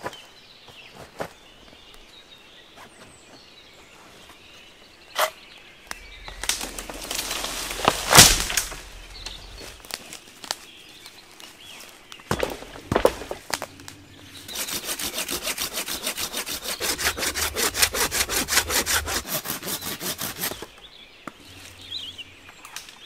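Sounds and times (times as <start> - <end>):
rustling through leafy branches: 5.8 - 23.0
footsteps on forest floor: 5.9 - 10.0, 11.6 - 19.4
twigs snapping: 5.9 - 10.6, 12.2 - 19.3.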